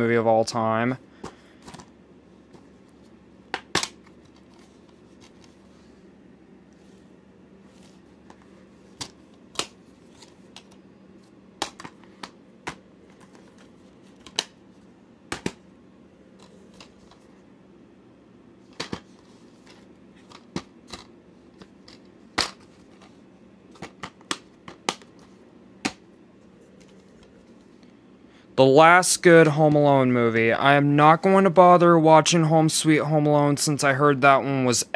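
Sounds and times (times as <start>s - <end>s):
faint steady hum: 0.0s - 34.9s.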